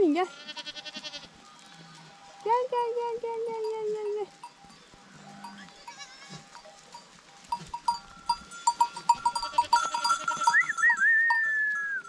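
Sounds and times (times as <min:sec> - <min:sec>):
animal bells clinking: 0:00.0 - 0:12.0
high wavering call: 0:10.4 - 0:12.0.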